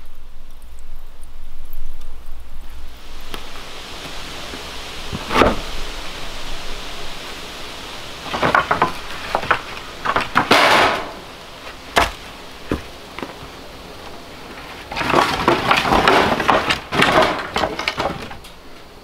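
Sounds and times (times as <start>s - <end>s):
wood sliding over pile: 3.0s - 19.0s
wooden boards knocking together: 5.1s - 5.7s, 8.3s - 13.6s, 14.6s - 18.5s.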